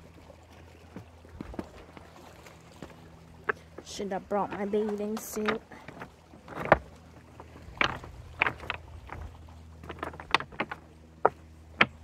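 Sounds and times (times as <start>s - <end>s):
low steady hum: 0.0s - 12.0s
beach stones clacking: 2.8s - 12.0s.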